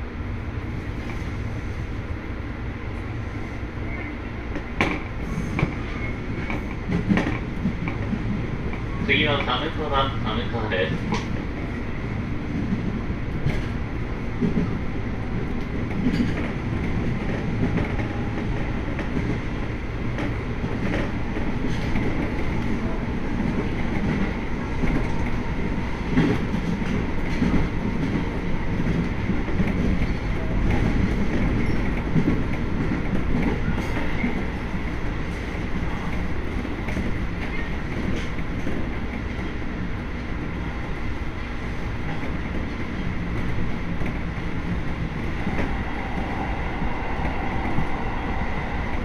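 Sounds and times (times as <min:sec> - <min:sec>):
train wheels rumbling on rails: 0:00.0 - 0:49.0
rail-joint clacks: 0:04.5 - 0:11.6, 0:15.4 - 0:19.4, 0:20.1 - 0:34.6.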